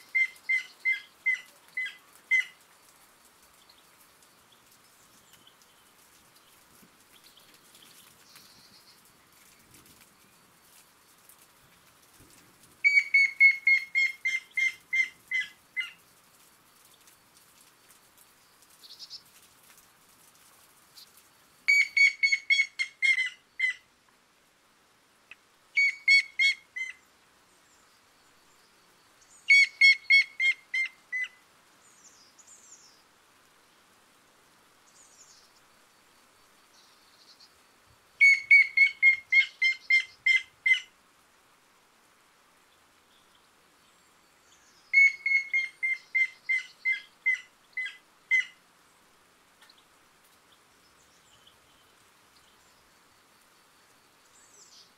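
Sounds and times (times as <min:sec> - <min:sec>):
woodpecker whistled notes: 0:12.8 - 0:15.1, 0:21.7 - 0:23.3, 0:25.8 - 0:26.6, 0:29.5 - 0:30.6, 0:38.2 - 0:40.8, 0:44.9 - 0:48.5.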